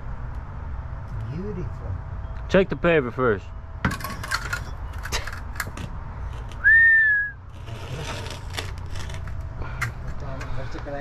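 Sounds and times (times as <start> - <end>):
short rising whistle: 6.6 - 7.4
hand tool scraping soil and gravel: 7.5 - 9.4.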